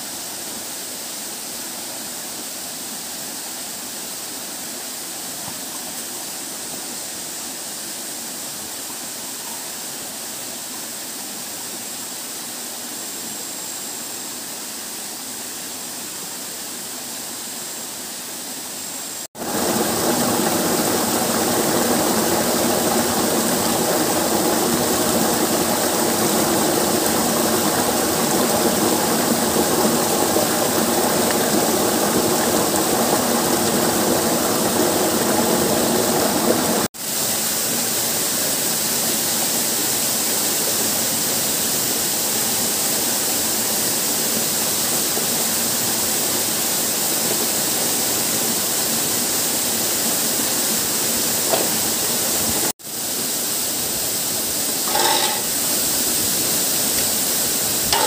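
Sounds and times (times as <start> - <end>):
stream cascading over boulders: 0.0 - 58.0
waterfall rushing: 19.3 - 58.0.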